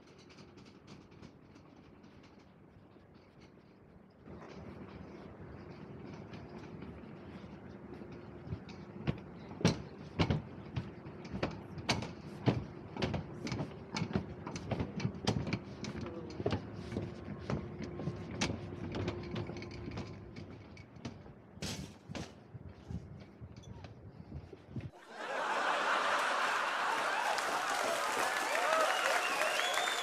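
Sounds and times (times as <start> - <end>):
sharp clicks and knocks: 0.0 - 25.0
train running: 0.0 - 25.0, 25.6 - 30.0.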